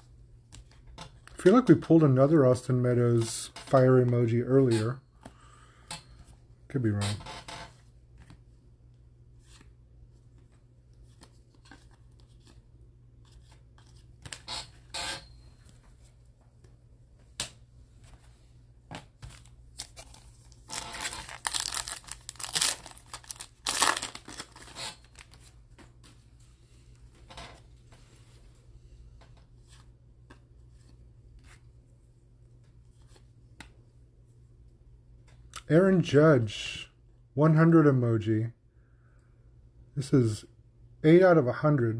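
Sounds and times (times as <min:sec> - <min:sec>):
foil wrapper tearing and crinkling: 0:20.6 - 0:25.4.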